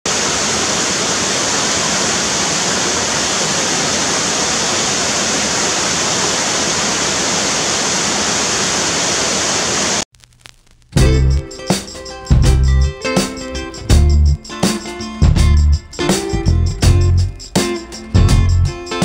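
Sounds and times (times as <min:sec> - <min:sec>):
rushing water: 0:00.1 - 0:10.0.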